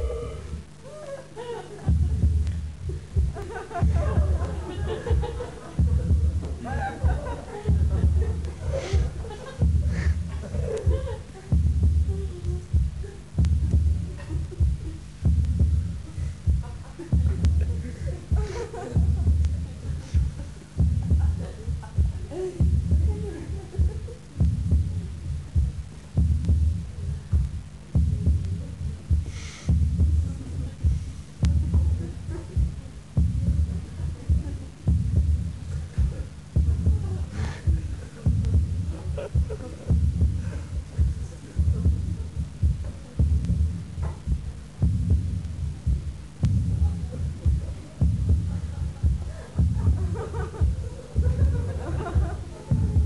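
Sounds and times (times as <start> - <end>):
low drum beats: 0.0 - 53.0
deep heartbeat-like thudding: 1.4 - 53.0
short hiss: 29.2 - 29.9, 37.3 - 38.2.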